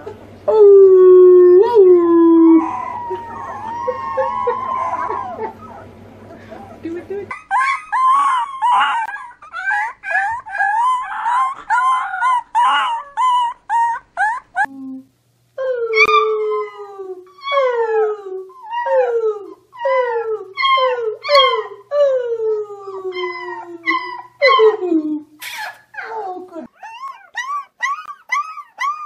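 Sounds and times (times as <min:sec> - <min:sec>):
man howling: 0:00.5 - 0:05.6
puppies yipping and howling: 0:02.0 - 0:14.7, 0:20.6 - 0:21.8, 0:22.9 - 0:24.8, 0:26.7 - 0:29.0.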